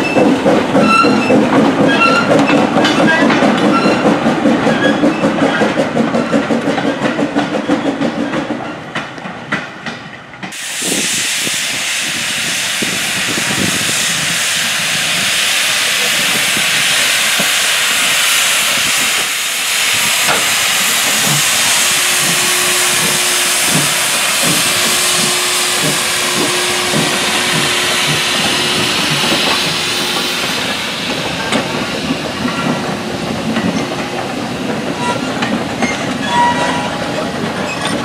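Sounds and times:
steam hissing: 10.5s - 36.2s
locomotive exhaust beats: 16.0s - 36.0s.

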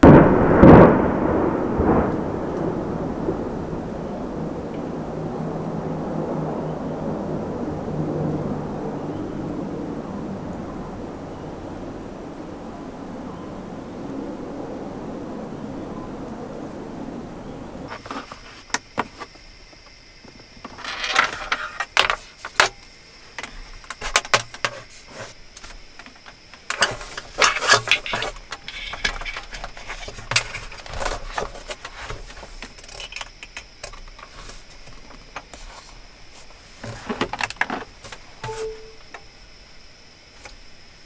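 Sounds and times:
clicks taps and rustles of handling: 20.6s - 36.0s
faint steady high tone: 38.4s - 39.8s.

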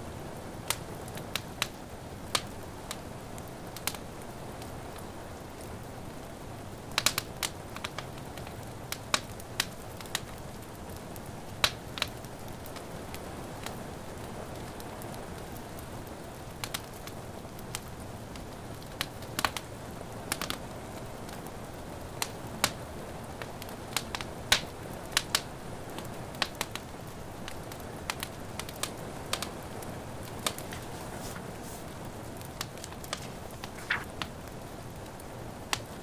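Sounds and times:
soft hiss of rain: 0.0s - 36.0s
wood fire crackling: 0.0s - 36.0s
sharp pops of fire: 6.9s - 10.4s, 11.6s - 12.9s, 22.2s - 22.8s, 23.4s - 26.9s, 27.5s - 29.6s, 30.2s - 36.0s.

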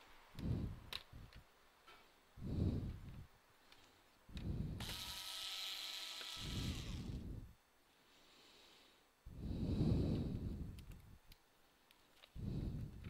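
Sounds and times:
electric screwdriver whirring: 4.8s - 7.2s.

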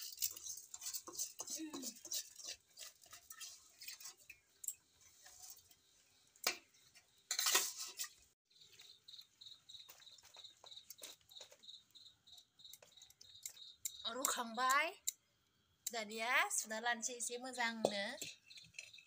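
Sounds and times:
rice scraping against metal strainer: 0.0s - 4.4s, 7.3s - 8.2s
crickets chirping: 8.5s - 14.6s.

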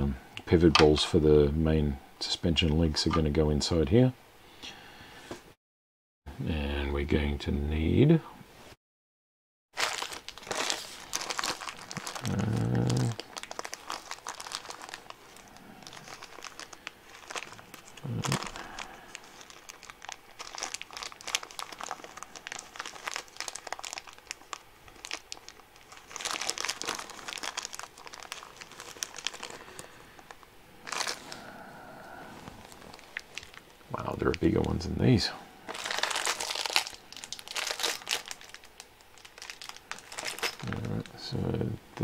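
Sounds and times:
plastic bag crinkling: 9.8s - 31.5s, 32.4s - 34.8s, 35.6s - 41.4s.

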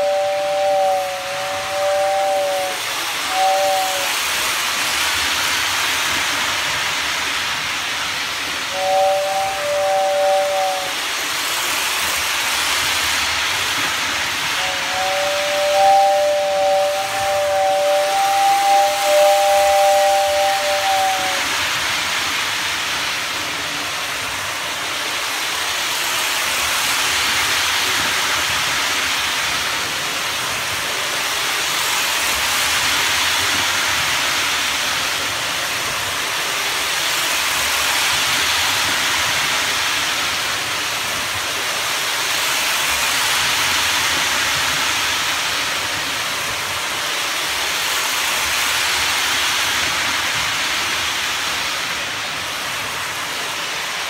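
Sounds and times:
model train running on track: 0.0s - 54.0s.

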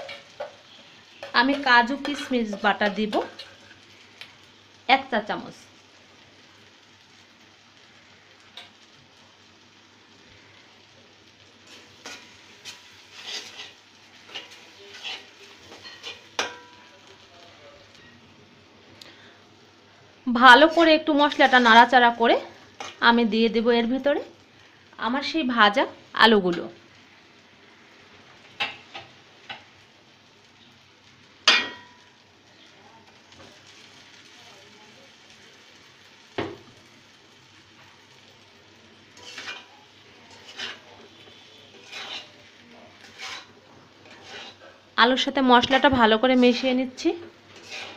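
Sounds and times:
spoon scraping metal pan: 0.0s - 3.8s, 11.7s - 16.7s, 39.2s - 42.4s, 43.0s - 44.7s, 47.5s - 47.9s
faint sizzle: 0.0s - 47.9s
utensils knocking on metal pot: 15.8s - 16.7s.

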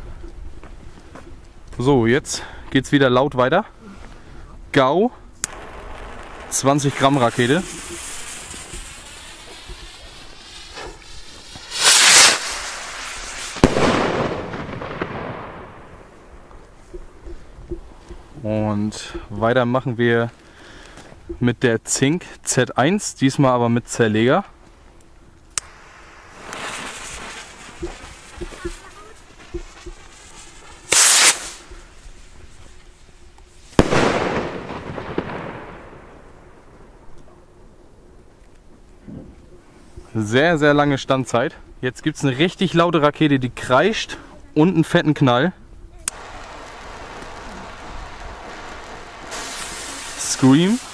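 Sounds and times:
fuse hissing: 5.4s - 13.6s, 25.6s - 33.7s, 46.1s - 50.9s
firework bang: 5.4s - 16.3s, 25.6s - 31.8s, 33.7s - 36.9s
rocket launching whoosh: 5.4s - 16.3s, 25.6s - 29.1s, 29.7s - 31.7s, 33.7s - 36.4s.

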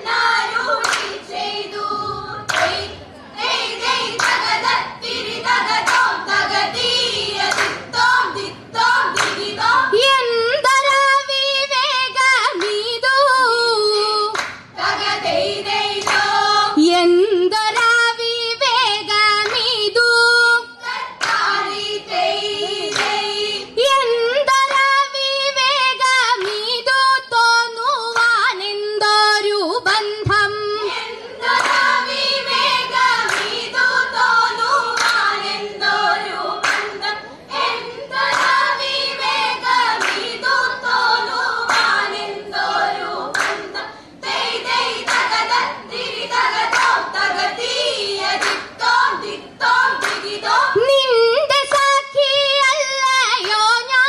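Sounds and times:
women singing in a group: 0.0s - 54.0s
hand claps: 0.7s - 1.2s, 2.4s - 2.8s, 4.1s - 4.7s, 5.7s - 6.2s, 7.4s - 8.5s, 9.1s - 9.6s, 12.5s - 12.8s, 13.9s - 14.7s, 15.9s - 16.4s, 19.4s - 19.7s, 21.2s - 21.6s, 22.8s - 23.3s, 26.3s - 26.7s, 31.5s - 32.0s, 33.1s - 35.4s, 36.6s - 37.1s, 37.8s - 38.8s, 39.7s - 40.6s, 41.6s - 42.2s, 43.3s - 47.3s, 48.2s - 50.4s, 53.4s - 53.6s.

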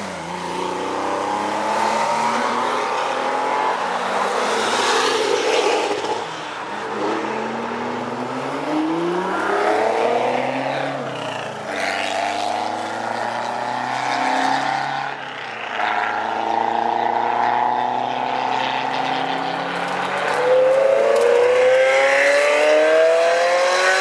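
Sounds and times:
sports cars accelerating past: 0.0s - 24.0s.

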